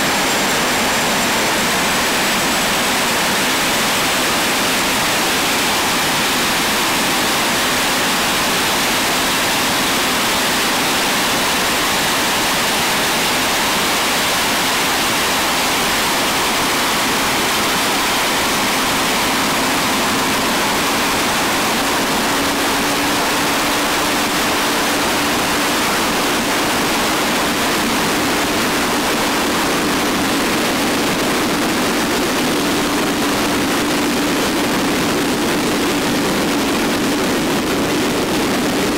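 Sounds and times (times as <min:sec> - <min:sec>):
jet turbine engine roar: 0:00.0 - 0:38.9
low hum: 0:15.6 - 0:38.9.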